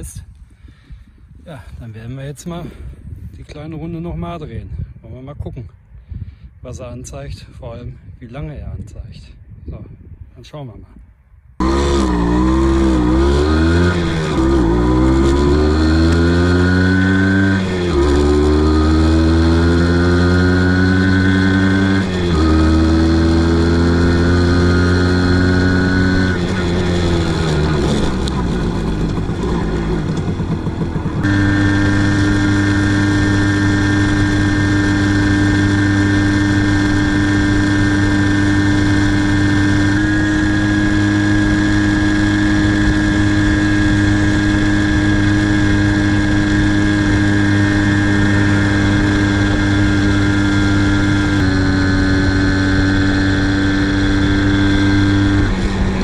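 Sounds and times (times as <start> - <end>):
moped engine accelerating: 11.6 - 56.0.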